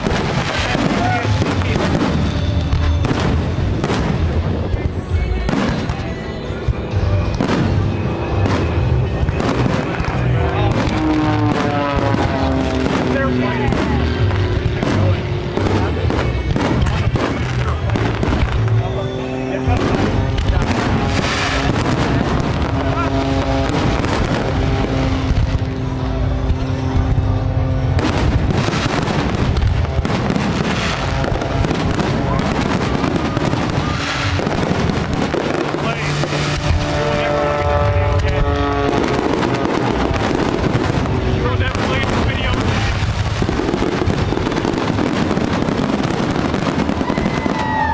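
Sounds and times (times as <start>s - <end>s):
fireworks bursting: 0.0s - 47.9s
music with sustained notes: 22.5s - 32.0s.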